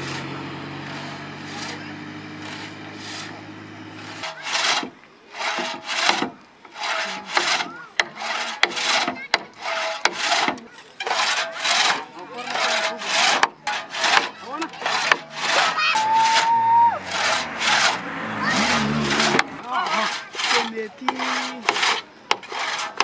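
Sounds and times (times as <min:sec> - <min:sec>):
vehicle engine humming: 0:00.0 - 0:07.9, 0:11.6 - 0:23.0
pit saw rasping through log: 0:00.0 - 0:23.0
sharp knocks: 0:04.2 - 0:15.8.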